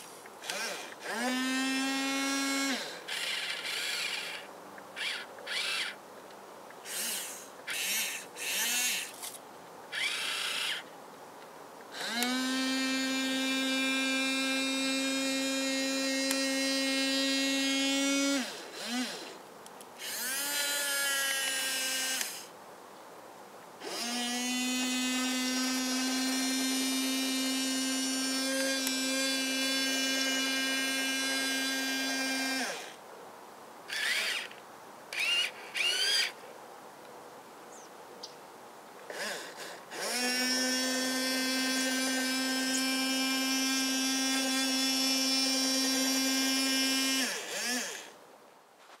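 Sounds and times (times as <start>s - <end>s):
electric gear motors whining: 0.4s - 6.0s, 6.8s - 9.3s, 9.9s - 10.9s, 11.9s - 19.4s, 20.0s - 22.5s, 23.8s - 32.9s, 33.9s - 34.5s, 35.1s - 36.4s, 39.1s - 48.1s.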